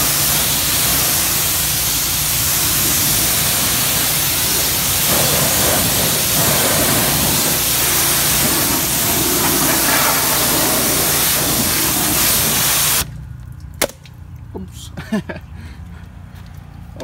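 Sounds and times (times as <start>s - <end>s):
pressure washer spray hissing: 0.0s - 13.1s.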